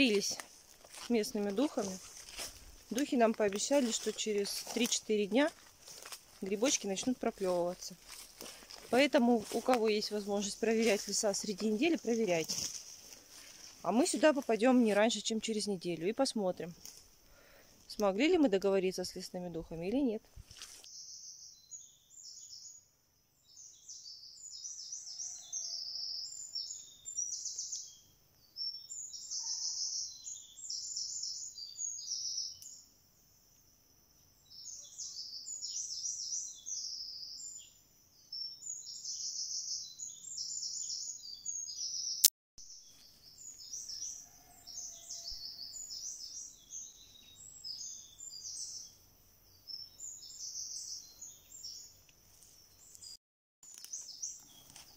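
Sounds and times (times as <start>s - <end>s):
bird chirping: 20.8s - 33.0s, 34.2s - 54.9s.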